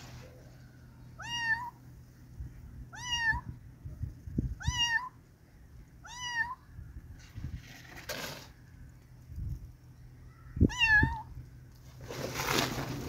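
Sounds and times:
kitten meowing: 1.2 - 1.8, 2.9 - 3.5, 4.6 - 5.2, 6.0 - 6.6, 10.6 - 11.3.

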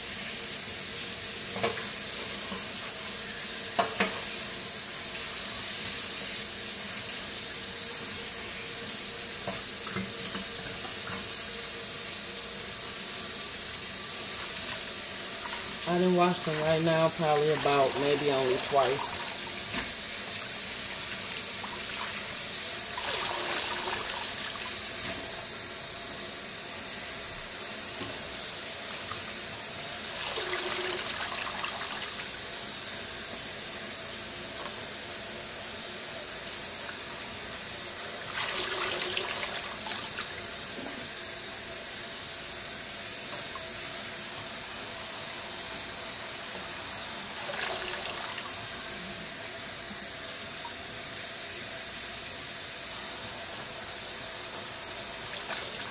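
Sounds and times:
faucet running into sink: 8.2 - 25.4, 26.4 - 33.6, 36.4 - 41.3, 43.2 - 49.1, 53.5 - 55.9.

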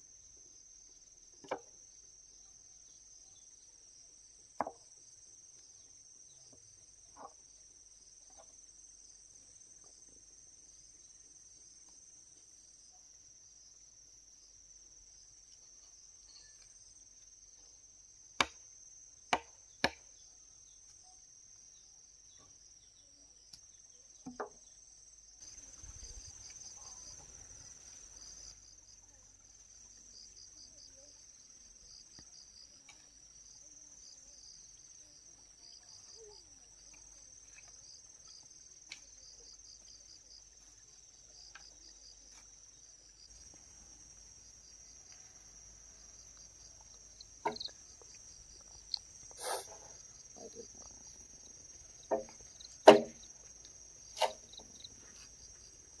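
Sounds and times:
crickets chirring: 0.0 - 56.0
sharp knocks: 52.1 - 53.2.

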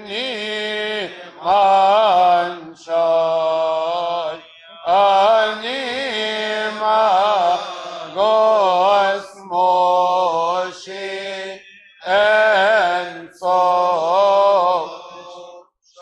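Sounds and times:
man chanting a hymn: 0.0 - 15.6.

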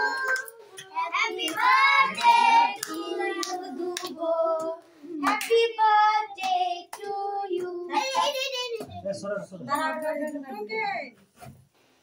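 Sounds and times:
hand claps: 0.0 - 4.2, 5.3 - 5.7
children and woman singing: 0.0 - 8.2.

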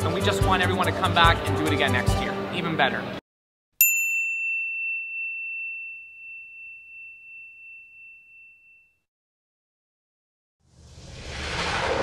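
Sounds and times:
high bell-like chime: 3.8 - 9.1.

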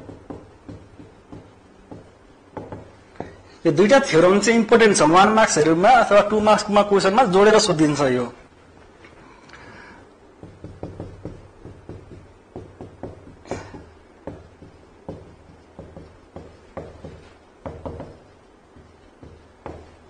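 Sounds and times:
writing taps and scratches on board: 0.0 - 3.4, 10.4 - 20.0.

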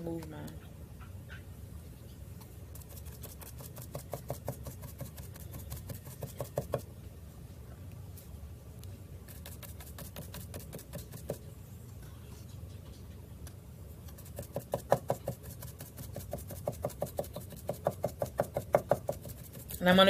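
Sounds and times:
stencil brush tapping on board: 2.8 - 6.8, 14.1 - 19.7.

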